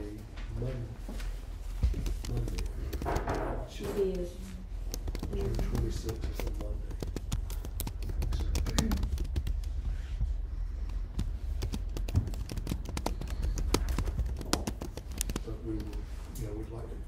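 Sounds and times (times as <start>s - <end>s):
steady low hum: 0.0s - 17.0s
pens writing on paper: 1.8s - 4.3s, 4.9s - 10.1s, 10.8s - 16.1s
laptop keyboard typing: 1.9s - 10.1s, 11.1s - 16.1s.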